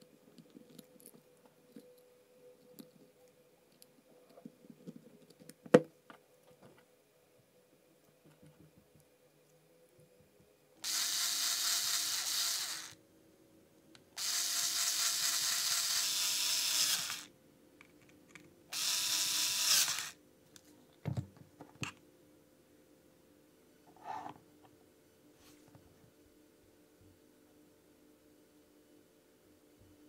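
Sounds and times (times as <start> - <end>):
cordless screwdriver running: 10.8 - 13.0, 14.2 - 17.3, 18.7 - 20.2.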